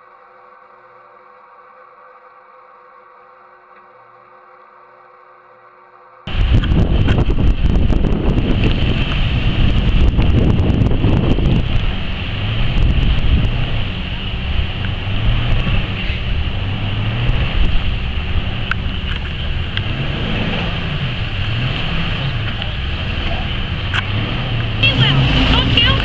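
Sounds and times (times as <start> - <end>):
engine revving: 6.3 - 26.0
water splashing: 6.3 - 26.0
wind buffeting microphone: 6.3 - 26.0.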